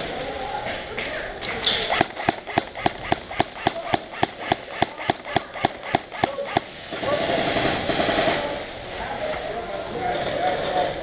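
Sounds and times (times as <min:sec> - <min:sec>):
airsoft rifle shots: 0:01.6 - 0:08.4.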